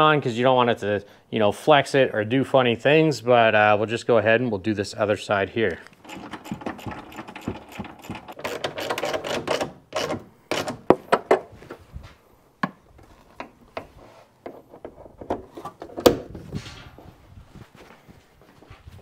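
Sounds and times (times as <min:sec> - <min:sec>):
screwdriver scraping and clicking: 0:05.8 - 0:11.0.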